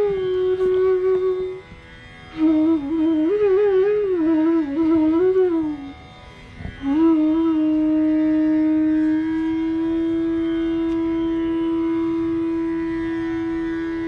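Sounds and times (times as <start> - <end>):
bamboo flute playing: 0.0 - 14.0.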